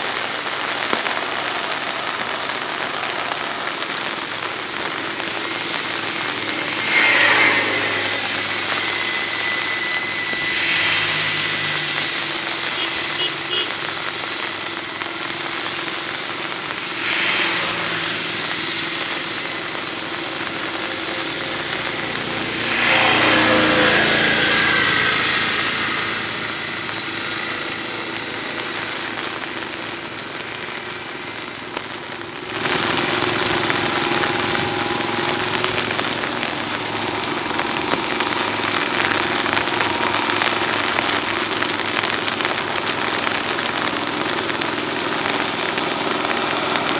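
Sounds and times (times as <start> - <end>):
rain falling: 0.0 - 46.9
tiller engine running: 0.0 - 46.9.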